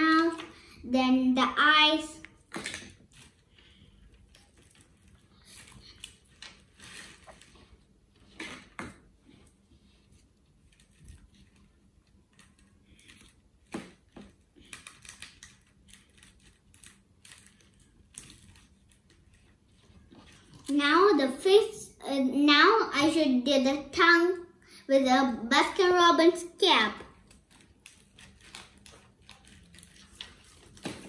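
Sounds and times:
paper crinkling: 27.2s - 31.0s.

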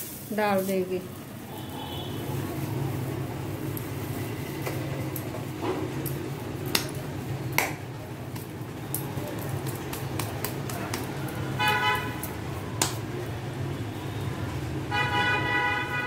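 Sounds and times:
hands patting dough: 5.9s - 13.2s.

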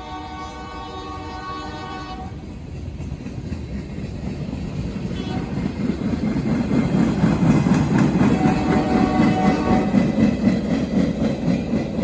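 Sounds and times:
train horn: 0.0s - 2.4s, 5.1s - 5.6s, 8.2s - 10.2s
train wheels clattering on rails: 0.0s - 12.0s.

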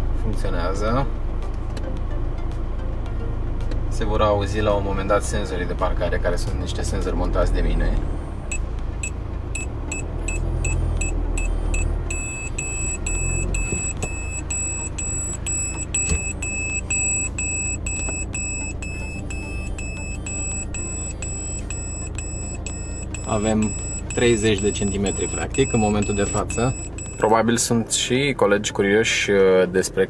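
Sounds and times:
parking sensor short high beeps: 8.5s - 27.7s.

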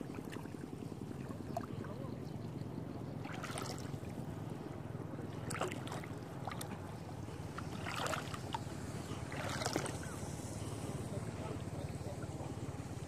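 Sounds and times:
water splashing: 0.0s - 1.9s, 3.2s - 4.3s, 5.2s - 11.5s
steady low rumble: 0.0s - 13.0s.

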